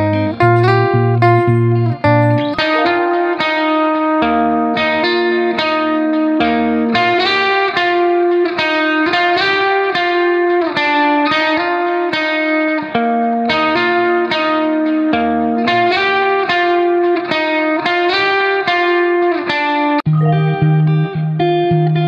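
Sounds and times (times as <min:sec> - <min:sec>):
guitar plucking notes: 0:00.0 - 0:10.6, 0:20.1 - 0:22.0.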